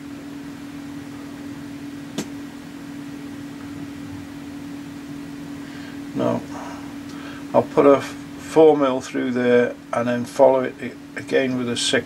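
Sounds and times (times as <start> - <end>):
milling machine hum: 0.0 - 12.0
sharp click: 2.2 - 2.4.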